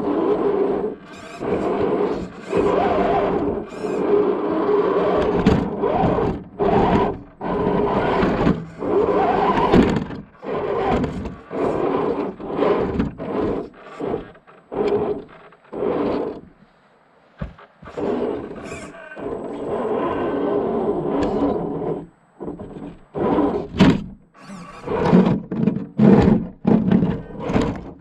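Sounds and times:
toy car electric motor whining: 0:00.0 - 0:16.4, 0:17.9 - 0:22.1, 0:24.4 - 0:25.2.

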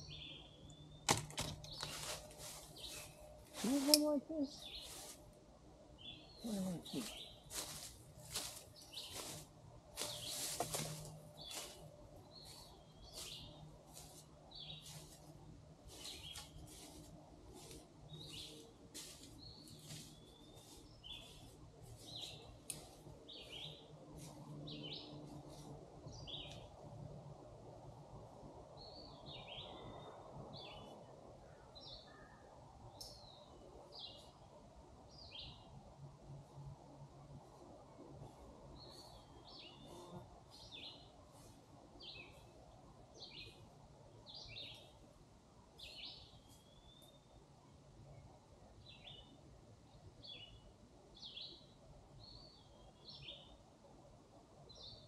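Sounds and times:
footsteps crunching: 0:01.7 - 0:04.0, 0:06.8 - 0:23.1.

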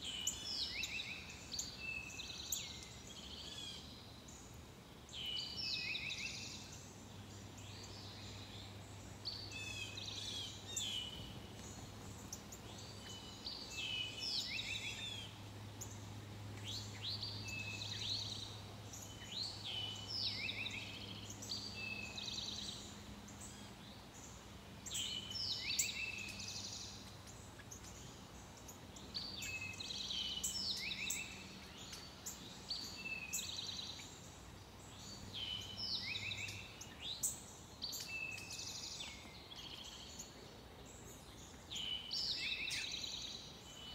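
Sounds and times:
faint low hum: 0:00.0 - 0:43.9.

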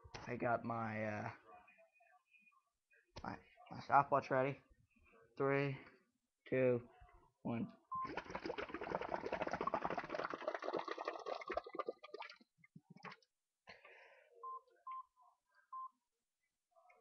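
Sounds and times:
bubbling through a straw: 0:08.0 - 0:13.2.

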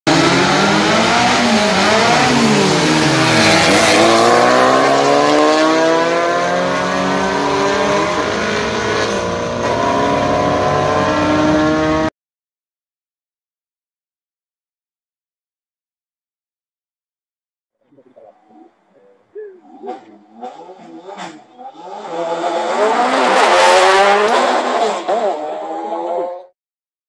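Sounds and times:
race car engines revving: 0:00.1 - 0:12.1, 0:19.3 - 0:26.5.

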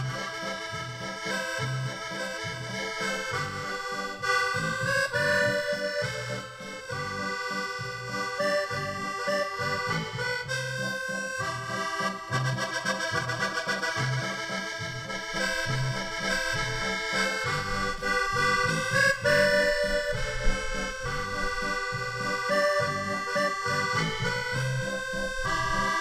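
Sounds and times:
accordion melody with bass: 0:00.0 - 0:26.0.

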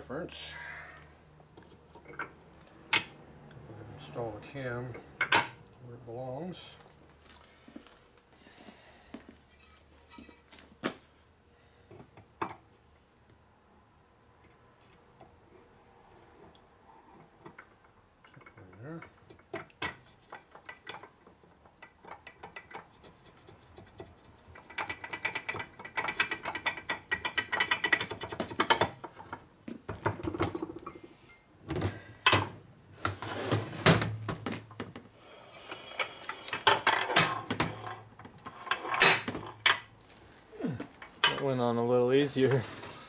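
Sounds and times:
metal parts clicking and clacking: 0:24.4 - 0:29.4.

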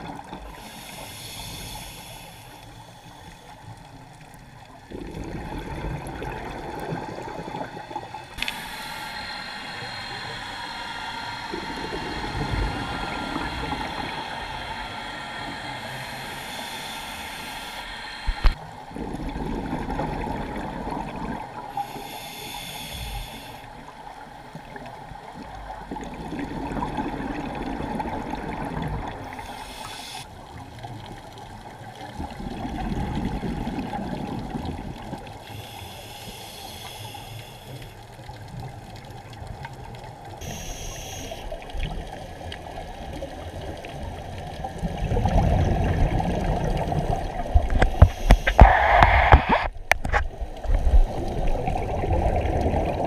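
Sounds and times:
gurgling rush of bubbles: 0:00.0 - 0:00.7, 0:04.8 - 0:17.0, 0:18.2 - 0:21.7, 0:24.6 - 0:29.5, 0:30.7 - 0:35.3, 0:41.5 - 0:53.0
faint steady hum: 0:00.0 - 0:53.0
regulator inhale hiss: 0:00.4 - 0:04.2, 0:07.7 - 0:18.6, 0:21.6 - 0:23.8, 0:29.2 - 0:30.4, 0:35.2 - 0:38.2, 0:40.4 - 0:41.7, 0:47.0 - 0:51.6.

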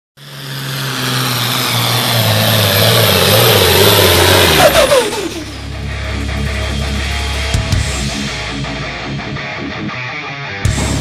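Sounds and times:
tractor engine running hard: 0:00.2 - 0:09.5.

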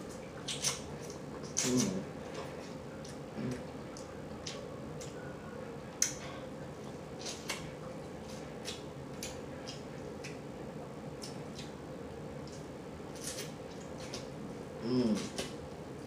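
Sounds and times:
wet lip-smacking and chewing: 0:00.1 - 0:05.2, 0:11.2 - 0:11.8.

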